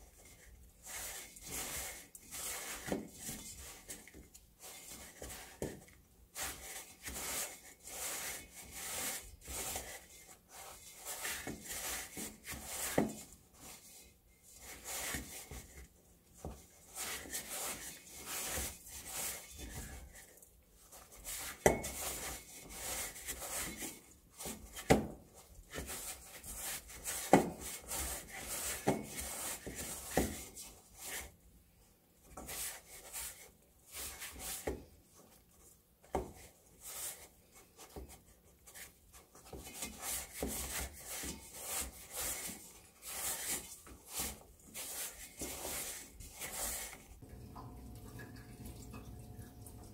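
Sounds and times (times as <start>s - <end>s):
dough rubbing against metal bowl: 6.3s - 24.8s, 25.4s - 31.4s, 36.4s - 47.3s.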